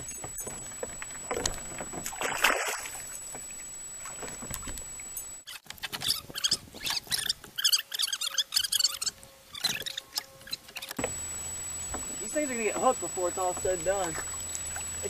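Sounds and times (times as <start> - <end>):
water splashing around kayak: 0.0 - 5.0.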